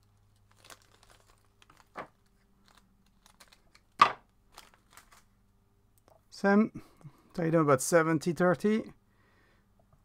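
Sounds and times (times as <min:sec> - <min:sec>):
rustling of materials: 0:00.0 - 0:05.5.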